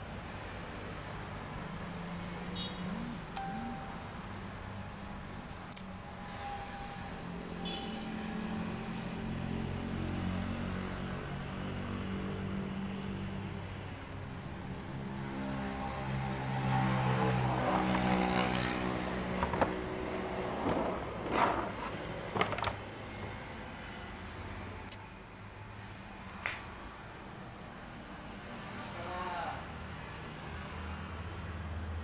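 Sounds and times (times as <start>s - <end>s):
sharp clicks and knocks: 19.3s - 20.0s.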